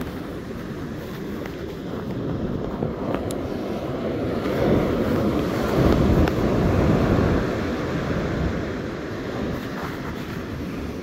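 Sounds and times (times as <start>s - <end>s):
surf breaking on shore: 0.0s - 11.0s
wind buffeting microphone: 0.0s - 11.0s.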